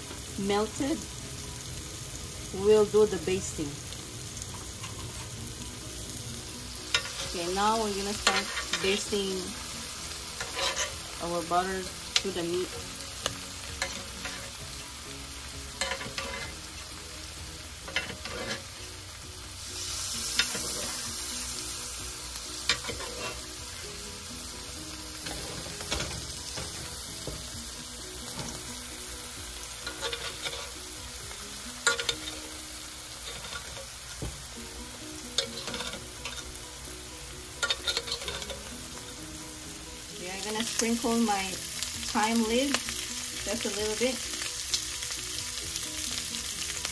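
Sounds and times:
steaks sizzling in butter: 0.0s - 46.9s
metal spoon scraping a pan: 4.5s - 5.4s, 6.9s - 9.1s, 10.3s - 11.2s, 13.7s - 14.6s, 15.8s - 16.7s, 17.8s - 18.8s, 20.2s - 21.1s, 22.6s - 23.6s, 25.1s - 27.0s, 29.8s - 30.8s, 31.8s - 34.0s, 35.3s - 36.6s, 37.6s - 38.8s.

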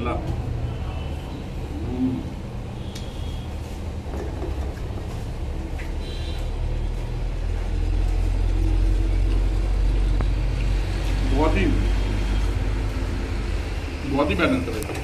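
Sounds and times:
low steady rumble: 3.9s - 15.0s.

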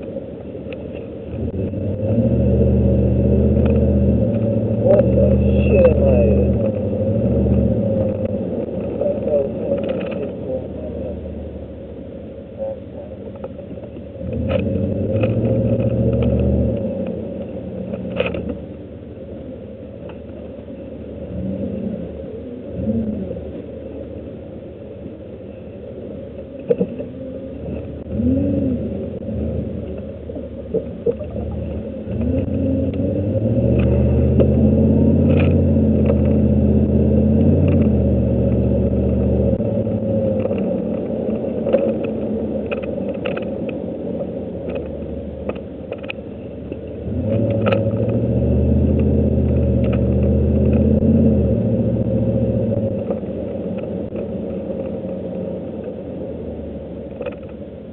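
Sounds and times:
truck engine revving and droning: 0.9s - 11.8s, 14.1s - 18.6s, 21.0s - 24.1s, 25.7s - 57.4s
sharp clicks and rattles: 2.9s - 10.6s, 13.3s - 18.8s, 29.8s - 56.1s, 57.0s - 57.7s.

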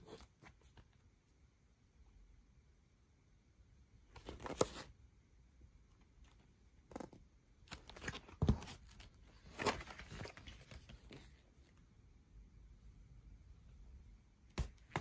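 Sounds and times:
cardboard sleeve rustling: 4.1s - 5.0s, 6.2s - 11.8s.

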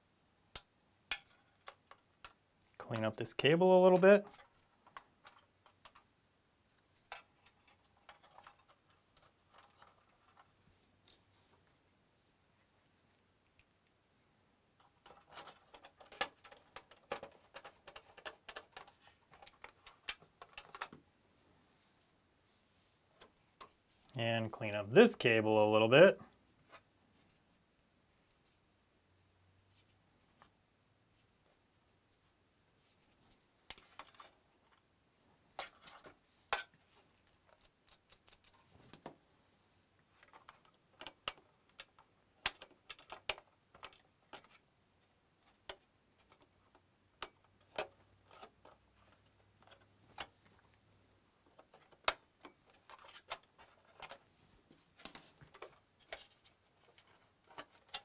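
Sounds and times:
hands handling plastic parts: 0.5s - 11.7s, 14.7s - 21.1s, 29.6s - 39.2s, 40.0s - 58.0s.

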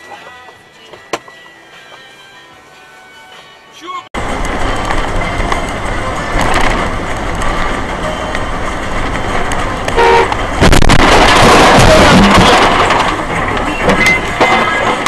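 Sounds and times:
road traffic noise: 0.0s - 15.0s
loud rush of noise: 4.2s - 15.0s
car horn honk: 10.0s - 10.4s.

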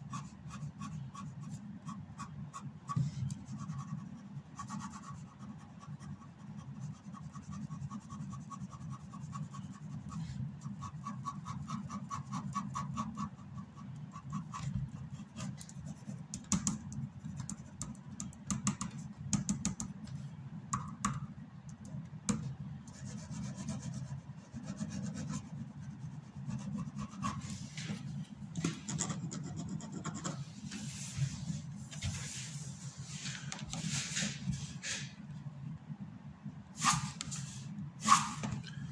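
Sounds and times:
pen scratching on paper: 0.0s - 16.4s, 22.9s - 28.0s, 28.6s - 30.6s
low steady hum: 0.0s - 38.9s.

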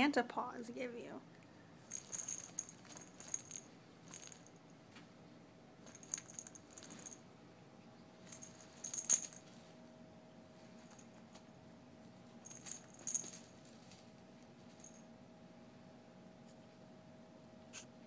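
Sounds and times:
small bell jingling: 1.8s - 4.7s, 5.8s - 7.2s, 8.2s - 9.5s, 12.4s - 14.0s, 14.6s - 15.1s.

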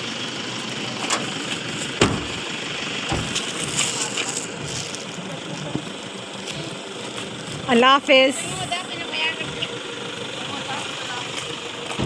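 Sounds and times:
car idling hum: 0.0s - 12.0s
sharp thump: 2.0s - 2.4s
low voices: 3.8s - 11.6s.

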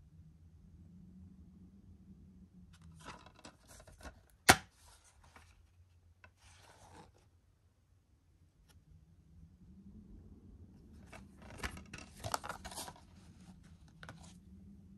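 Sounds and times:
plastic case rustling: 2.9s - 5.6s, 11.0s - 14.4s
sharp plastic snap: 4.4s - 4.7s.

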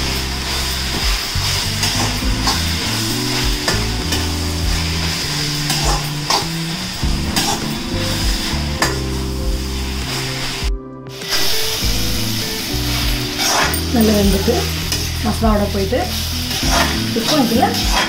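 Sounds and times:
food sizzling in a pan: 0.0s - 18.0s
metal spatula scraping and knocking pan: 1.7s - 7.8s, 16.5s - 18.0s.

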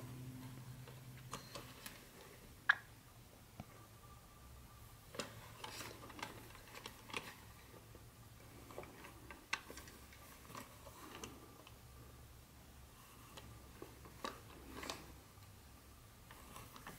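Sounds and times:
plastic toy clicking and rustling: 5.2s - 7.4s.

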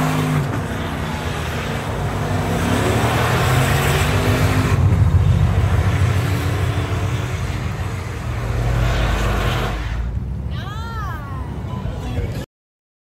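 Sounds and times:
car engine revving hard: 0.0s - 10.1s.

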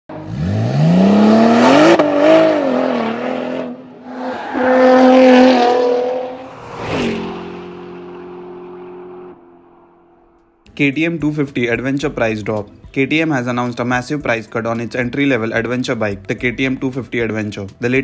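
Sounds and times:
car engine revving: 0.1s - 10.6s
sharp whoosh: 6.0s - 9.0s.

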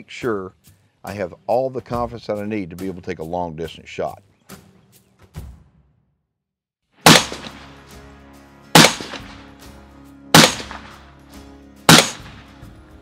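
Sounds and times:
rifle shots with echo: 7.0s - 7.7s, 8.8s - 9.4s, 10.4s - 11.0s, 11.9s - 12.5s.

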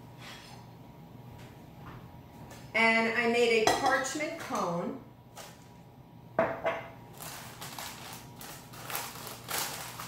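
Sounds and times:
paper crinkling and rustling: 7.1s - 10.0s.

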